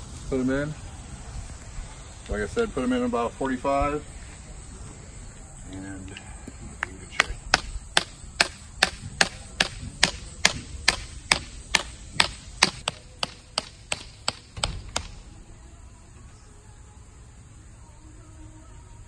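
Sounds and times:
hammer driving stake into ground: 7.2 - 15.2.

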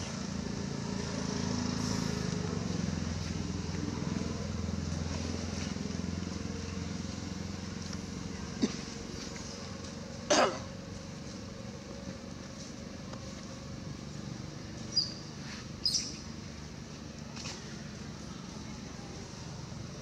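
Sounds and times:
steady background noise: 0.0 - 20.0
macaque high squeaks: 14.9 - 16.2.

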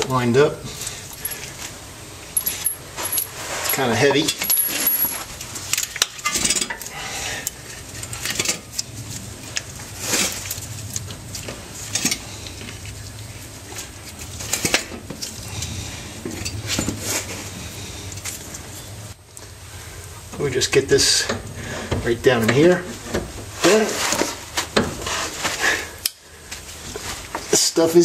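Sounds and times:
metal parts clinking: 2.4 - 6.8.

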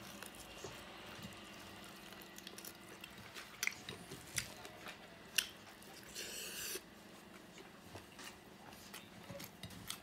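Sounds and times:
chewing food: 0.0 - 10.0.

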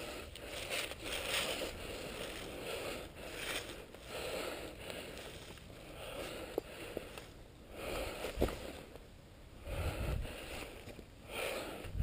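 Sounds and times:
footsteps crunching on forest litter: 0.0 - 9.0.

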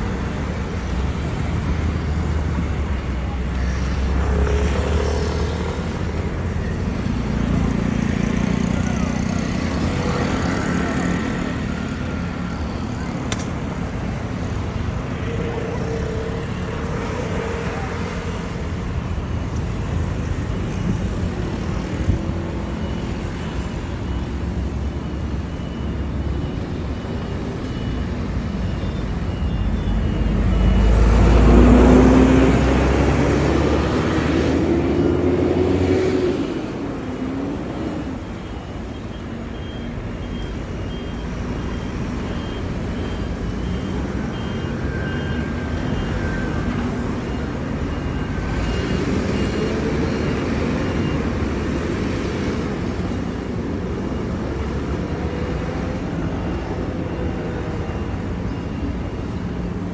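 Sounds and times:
street traffic: 0.0 - 59.9.

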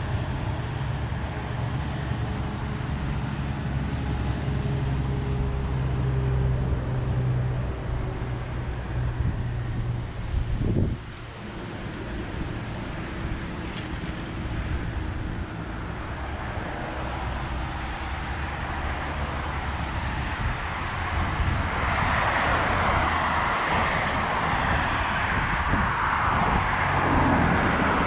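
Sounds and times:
cars driving past: 0.0 - 28.0.

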